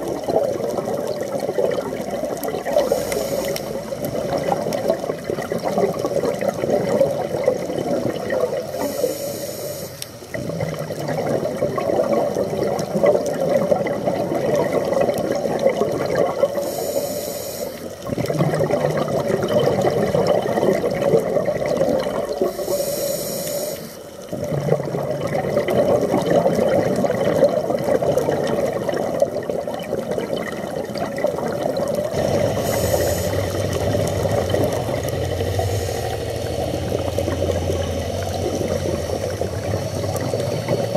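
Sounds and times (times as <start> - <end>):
bubbling exhalation underwater: 0.0 - 9.0, 10.3 - 16.7, 17.9 - 22.8, 24.3 - 40.9
regulator inhalation hiss: 2.8 - 3.9, 8.7 - 10.2, 16.6 - 17.9, 22.4 - 24.1, 32.3 - 33.6, 35.5 - 38.2.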